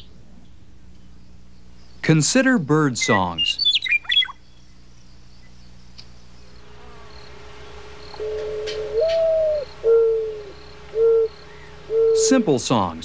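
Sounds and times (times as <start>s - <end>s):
dove cooing: 6.7s - 12.8s
faint high ticks: 8.1s - 9.3s.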